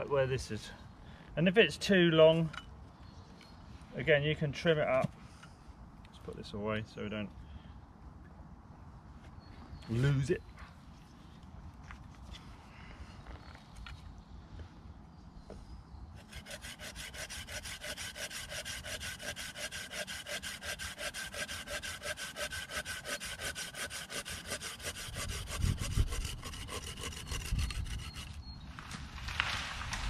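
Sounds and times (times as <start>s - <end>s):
hand saw cutting wood: 16.2s - 28.4s
tree falling with thuds: 28.7s - 30.0s.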